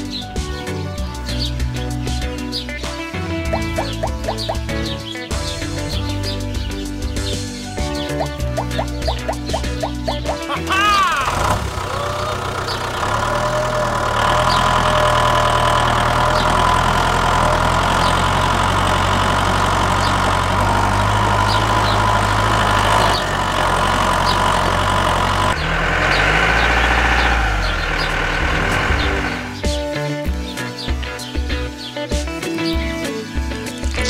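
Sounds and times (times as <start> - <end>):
tractor engine idling: 3.2 - 29.8.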